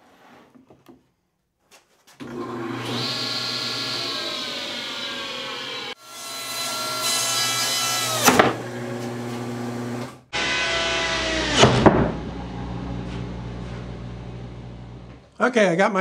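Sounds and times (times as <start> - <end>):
table saw running: 2.2 - 11.7.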